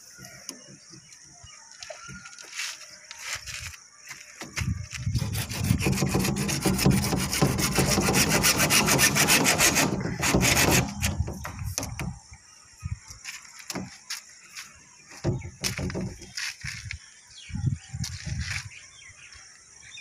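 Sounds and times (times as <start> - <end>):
rasping scraping on plastic pipe: 5.1 - 12.2
pipe knocks and clicks: 9.4 - 12.2.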